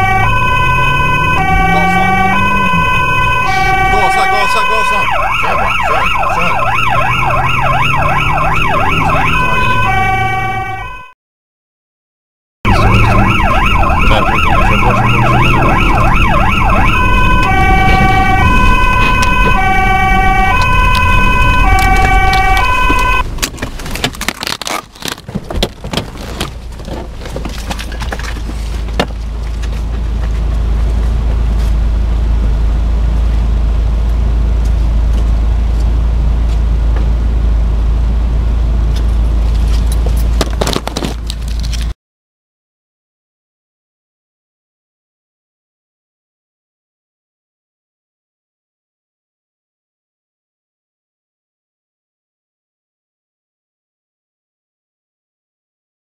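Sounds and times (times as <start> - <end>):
emergency vehicle siren wailing: 0.0 - 11.2, 12.7 - 23.4
car rumbling at speed from inside: 12.7 - 24.2, 24.9 - 40.3.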